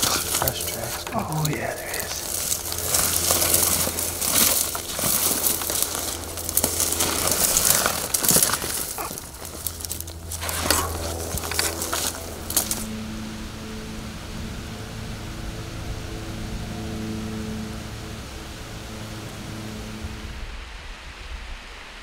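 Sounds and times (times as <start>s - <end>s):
footsteps crunching dry leaves: 0.0s - 13.0s
steady low hum: 0.0s - 22.0s.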